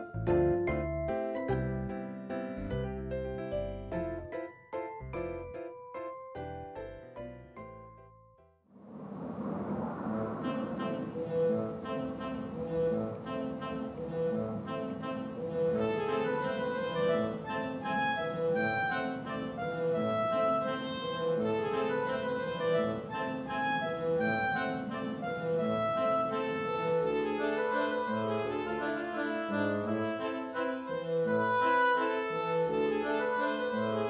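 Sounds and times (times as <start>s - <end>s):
instrumental background music: 0.0s - 8.6s, 10.2s - 34.0s.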